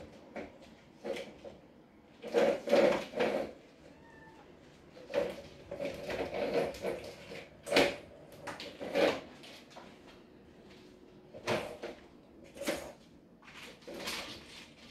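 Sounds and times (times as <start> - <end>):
irregular knocks and scrapes: 2.2 - 3.6, 4.9 - 10.0.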